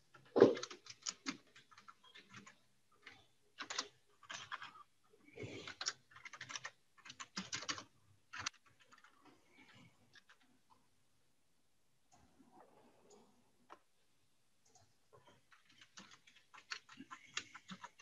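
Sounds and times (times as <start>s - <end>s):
computer keyboard typing: 0.1s - 10.5s, 14.6s - 18.0s.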